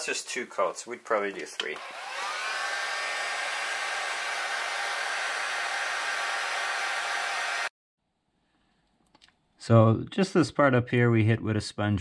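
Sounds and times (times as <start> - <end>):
hair dryer blowing: 1.8 - 7.7.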